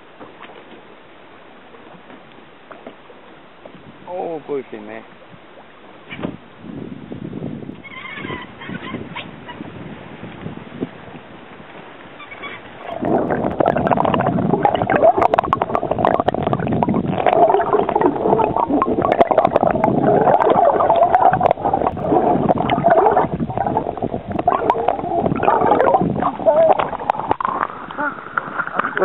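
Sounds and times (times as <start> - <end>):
muffled underwater rushing and gurgling: 0.0 - 29.0
small crackles and pops: 13.0 - 29.0.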